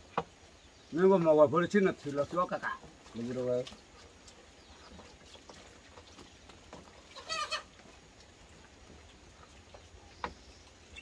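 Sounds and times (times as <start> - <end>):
wavering farm animal call: 7.0 - 7.8.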